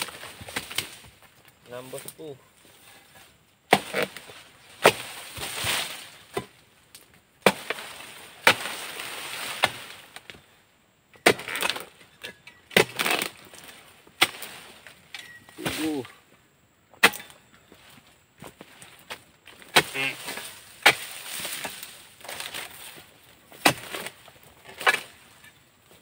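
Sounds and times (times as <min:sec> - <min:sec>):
chisel chopping palm fronds: 0:00.0 - 0:01.1, 0:03.1 - 0:06.6, 0:07.4 - 0:10.4, 0:11.2 - 0:16.1, 0:17.0 - 0:17.4, 0:19.5 - 0:25.5
fronds rustling: 0:00.0 - 0:26.0.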